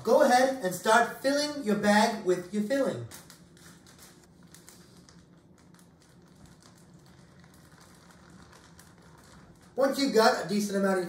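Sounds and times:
plastic bag crinkling: 0:03.1 - 0:10.1.

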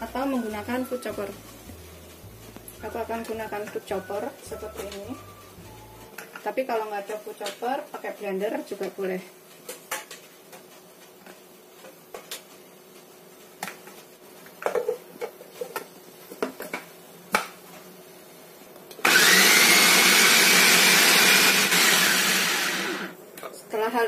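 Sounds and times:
food chopper motor whirring: 0:19.0 - 0:23.2.

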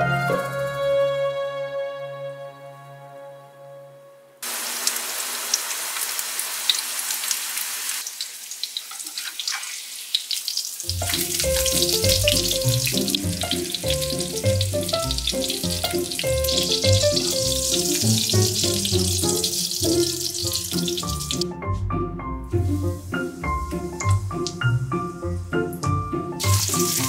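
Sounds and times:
background music: 0:00.0 - 0:04.4, 0:10.9 - 0:27.0
schnitzel sizzling in hot oil: 0:04.4 - 0:21.4, 0:26.4 - 0:27.0.

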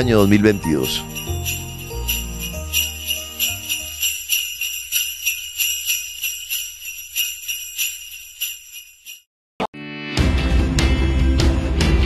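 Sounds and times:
sleigh bells shaken: 0:00.0 - 0:09.3.

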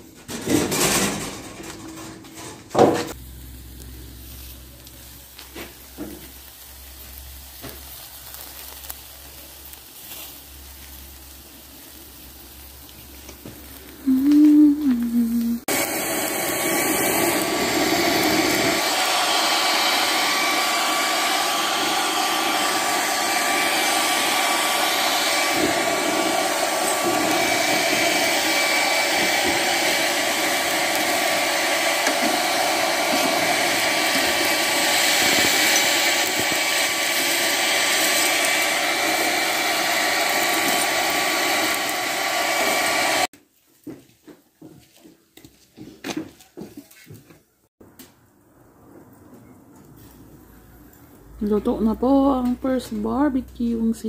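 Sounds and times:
hair dryer blowing: 0:13.3 - 0:43.3.

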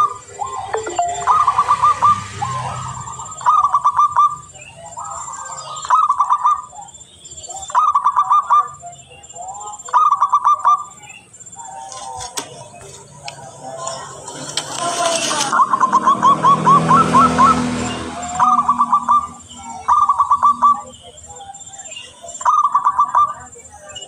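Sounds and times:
dove cooing: 0:15.3 - 0:20.9.

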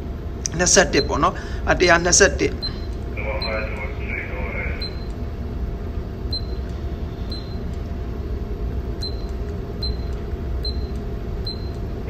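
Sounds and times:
ship low rumble: 0:00.0 - 0:12.0.

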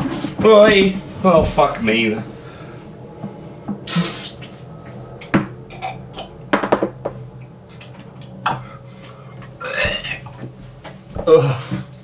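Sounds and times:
man gagging and retching: 0:09.6 - 0:10.4.

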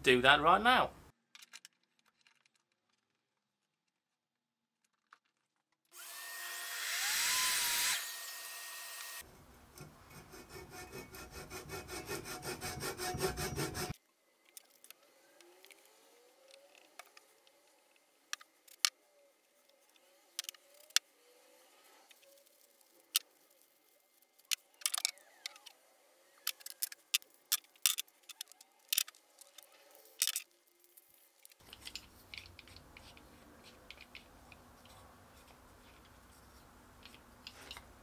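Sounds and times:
wooden parts clicking on workbench: 0:24.5 - 0:25.8, 0:26.4 - 0:30.5.

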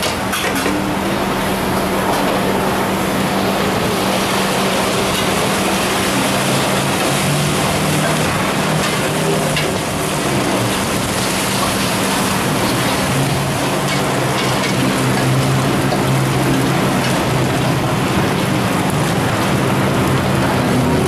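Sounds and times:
eggs sizzling in hot oil: 0:03.9 - 0:17.6.

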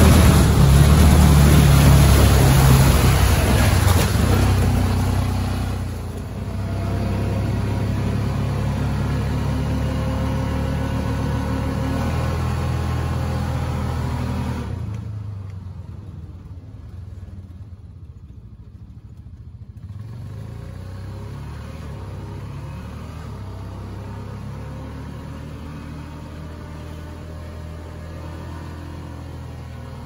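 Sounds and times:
engine and road rumble: 0:00.0 - 0:30.0.

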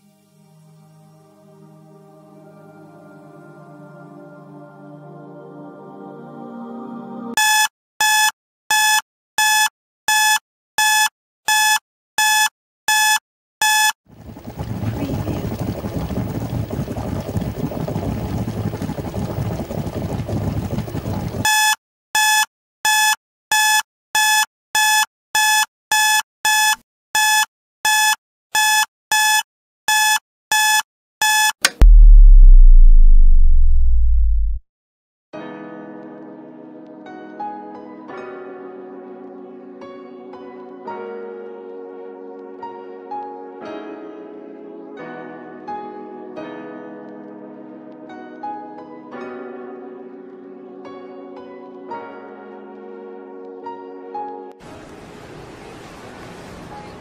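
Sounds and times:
alarm clock beeping: 0:07.4 - 0:14.0, 0:21.5 - 0:31.5.

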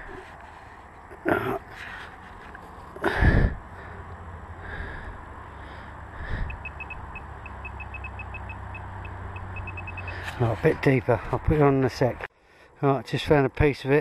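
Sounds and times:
metal detector beeping: 0:06.5 - 0:10.2.

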